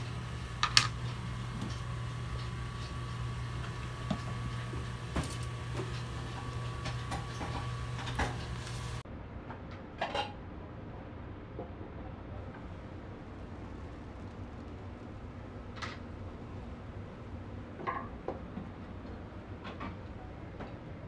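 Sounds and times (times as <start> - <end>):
utensils and containers clicking: 0.0 - 9.0
steady low hum: 0.0 - 9.3.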